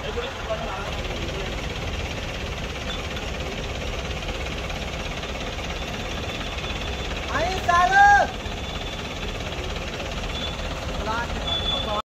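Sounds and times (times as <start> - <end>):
engine rumbling: 0.0 - 12.0.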